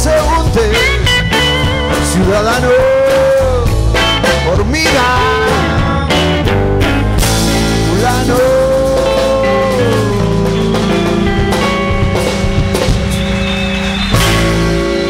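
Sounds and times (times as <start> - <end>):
rock band playing live: 0.0 - 15.0
guitar note bending downward: 0.7 - 15.0.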